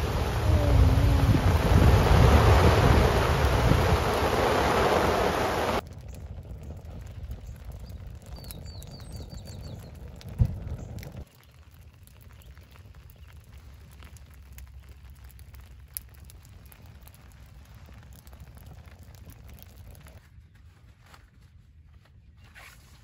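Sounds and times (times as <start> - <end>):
heavy rain pouring: 0.0 - 5.8
charcoal fire crackling: 0.0 - 20.3
outdoor ambience: 0.0 - 23.0.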